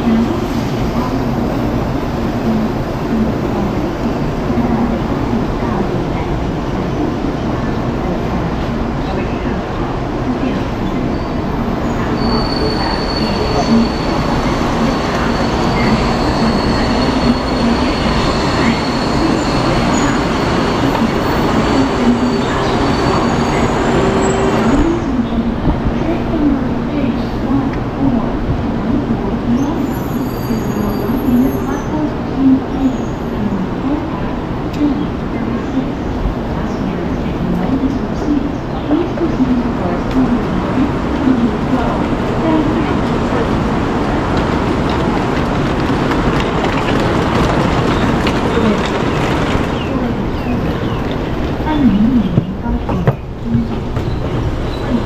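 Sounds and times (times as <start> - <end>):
faint voices: 0.0 - 55.0
train rumbling and hissing: 0.0 - 55.0
passengers' footsteps: 40.1 - 55.0.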